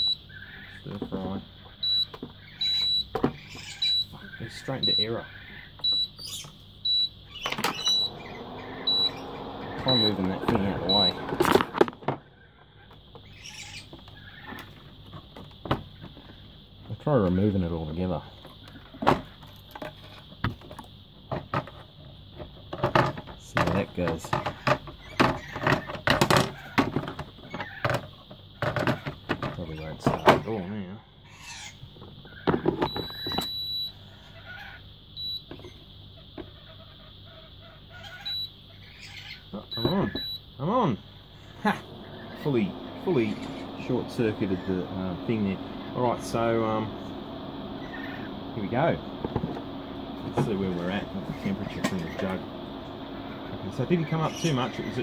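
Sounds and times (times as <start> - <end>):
cooktop beeping: 5.8 - 12.2, 32.5 - 34.0, 39.6 - 40.5, 41.3 - 55.0
hens clucking: 46.9 - 55.0.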